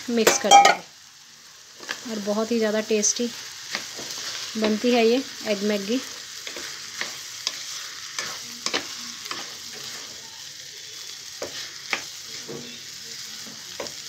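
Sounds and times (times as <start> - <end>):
food sizzling in a pan: 0.0 - 14.0
spatula scraping against pan: 6.0 - 10.2.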